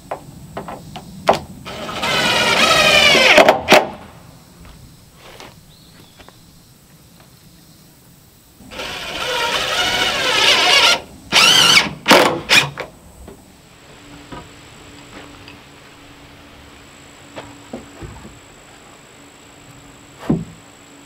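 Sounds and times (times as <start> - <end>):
cordless drill driving screw: 1.7 - 3.4, 8.7 - 12.7.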